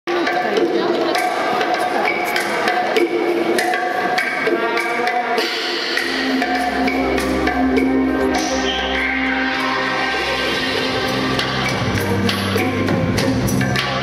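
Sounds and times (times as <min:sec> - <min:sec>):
rumba music: 0:00.1 - 0:14.0
deep bass line: 0:06.1 - 0:14.0.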